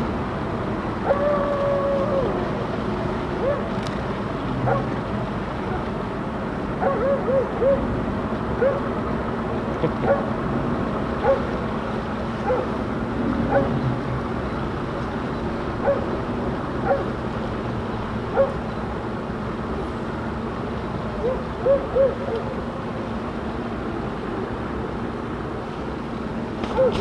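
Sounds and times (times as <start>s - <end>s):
steady low hum: 0.0s - 26.7s
dog barking: 4.7s - 4.9s, 6.8s - 7.8s, 8.6s - 8.9s, 10.0s - 10.3s, 11.2s - 11.5s, 12.5s - 12.7s, 13.5s - 13.7s, 15.8s - 16.1s, 16.8s - 17.1s, 18.3s - 18.6s, 26.8s - 27.0s.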